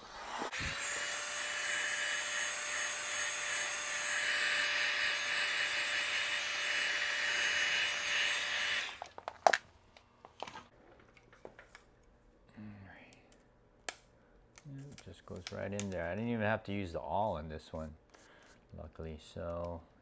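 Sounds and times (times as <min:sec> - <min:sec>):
heat gun blowing with whine: 0:00.0 - 0:09.1.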